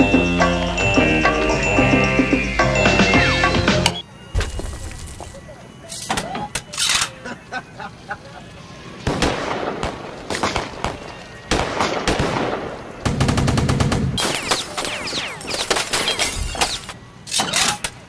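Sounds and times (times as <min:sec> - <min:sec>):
quick falling whistles: 0:14.2 - 0:17.8.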